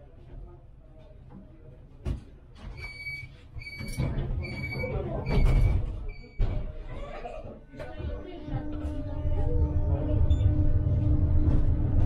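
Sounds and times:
tram rumble: 7.1 - 12.0.

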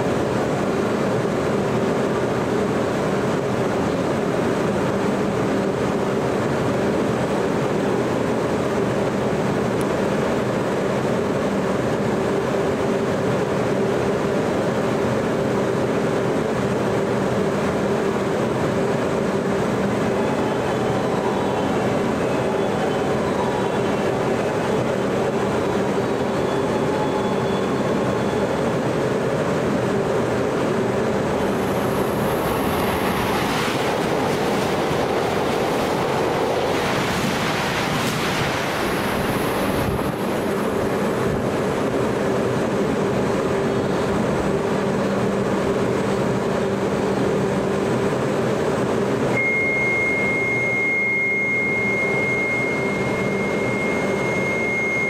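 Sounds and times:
train running noise in cabin: 0.0 - 55.0
steady high tone: 19.7 - 29.0, 31.3 - 41.8, 49.3 - 55.0.

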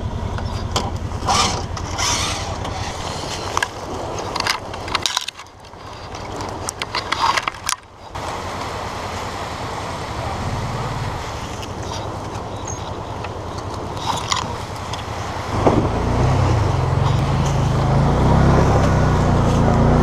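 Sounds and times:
utility vehicle engine idling: 0.0 - 20.0
metal clicks of winch hook: 13.2 - 15.0.

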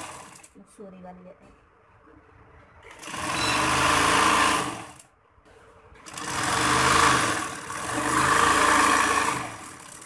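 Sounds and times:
sewing machine stitching: 0.0 - 0.5, 2.8 - 5.1, 6.0 - 10.0.

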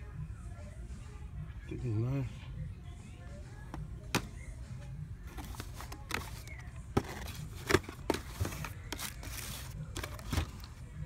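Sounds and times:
packaging rustling: 5.3 - 10.7
plastic boxes knocking together: 5.4 - 10.7.

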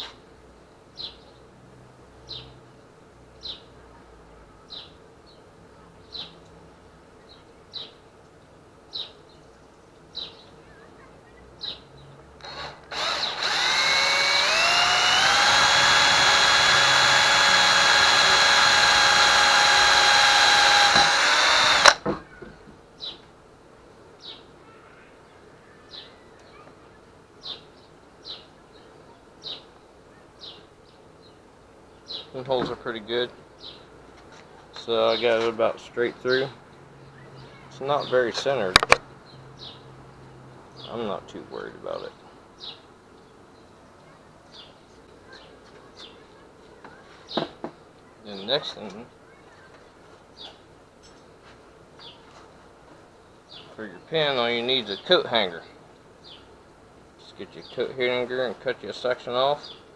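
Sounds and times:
cordless drill whining: 12.4 - 22.0.

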